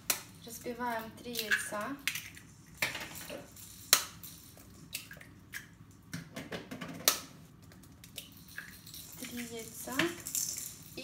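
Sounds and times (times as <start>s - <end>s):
knife cracking eggshells: 1.3s - 2.9s.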